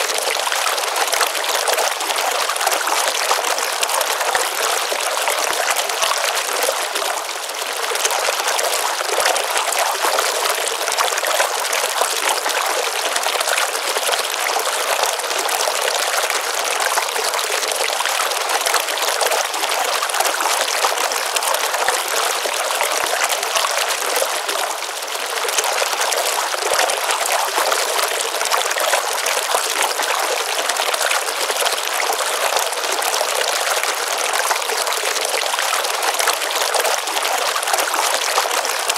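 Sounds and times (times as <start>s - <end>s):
stream water flowing: 0.0s - 38.9s.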